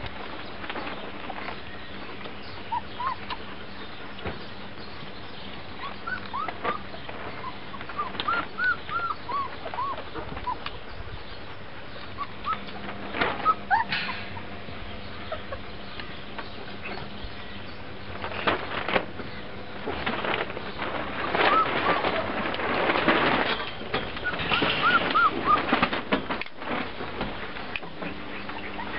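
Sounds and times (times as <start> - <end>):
puppies shuffling and scuffling: 0.0 - 28.9
puppies squeaking and whimpering: 2.4 - 3.9, 5.8 - 10.9, 11.9 - 16.0, 20.9 - 26.1, 28.2 - 28.9.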